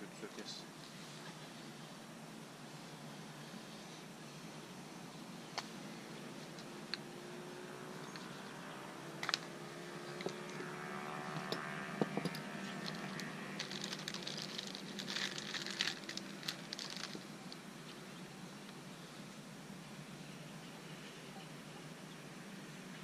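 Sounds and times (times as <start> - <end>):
plastic packaging crinkling: 12.8 - 17.6.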